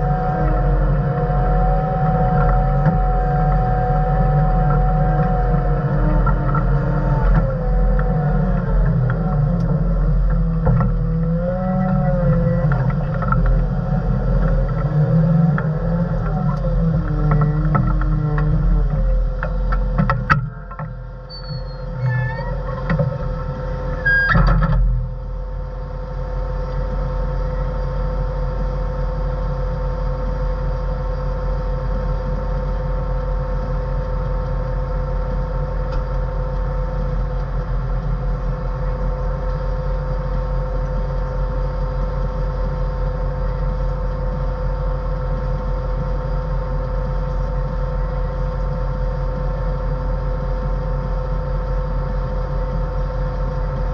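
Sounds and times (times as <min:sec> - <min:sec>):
diesel engine drone from cab: 0:00.0 - 0:53.9.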